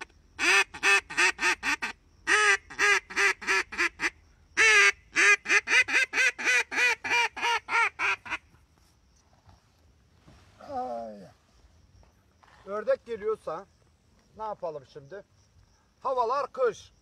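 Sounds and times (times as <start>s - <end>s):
duck call quacks: 0.0s - 8.5s.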